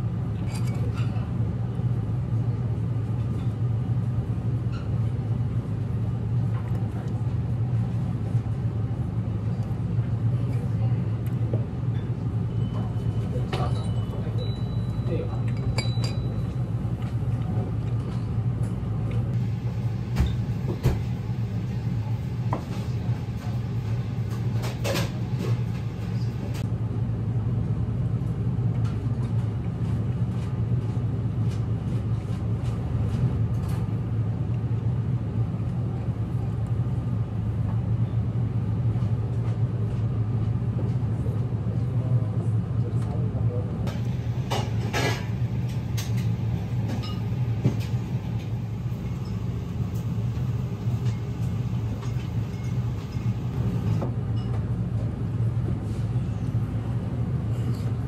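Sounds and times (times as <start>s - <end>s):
restaurant room rumble: 0.0s - 58.0s
tableware clinking: 0.4s - 1.3s, 13.5s - 16.6s, 46.9s - 47.4s.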